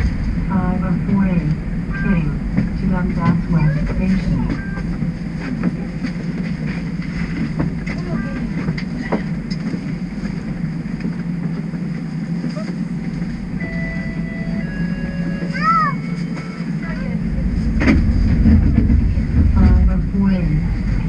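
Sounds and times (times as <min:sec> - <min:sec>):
streetcar equipment humming: 0:00.0 - 0:21.0
brief steady tones: 0:13.5 - 0:16.8.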